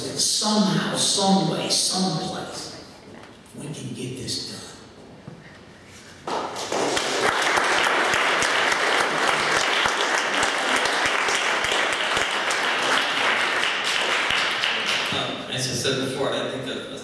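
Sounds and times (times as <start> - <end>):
audience applauding: 6.3 - 15.3.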